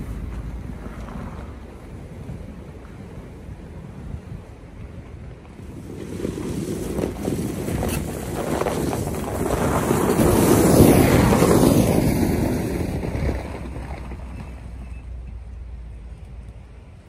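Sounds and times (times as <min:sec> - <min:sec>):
truck driving by on snow: 0:00.0 - 0:17.0.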